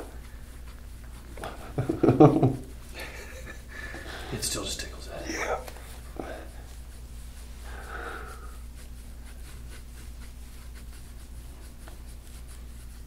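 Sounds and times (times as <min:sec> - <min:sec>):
steady low hum: 0:00.0 - 0:13.0
tool scraping over oiled skin: 0:04.3 - 0:13.0.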